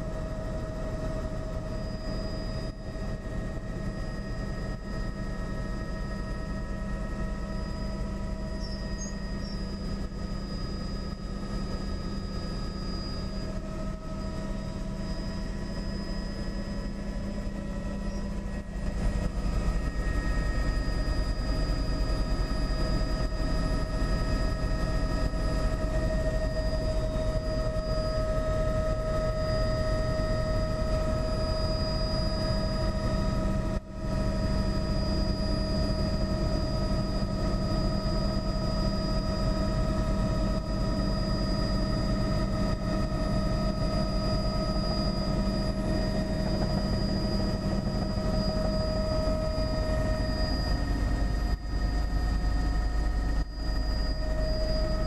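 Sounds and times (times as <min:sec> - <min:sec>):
helicopter rotor and engine drone: 0:00.0 - 0:55.0
steady whining tones: 0:00.0 - 0:55.0.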